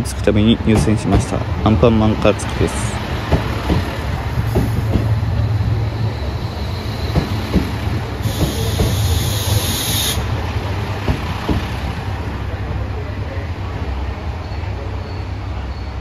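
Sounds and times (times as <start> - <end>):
diesel train engine hum: 0.0 - 16.0
compressed air hiss: 8.2 - 10.3.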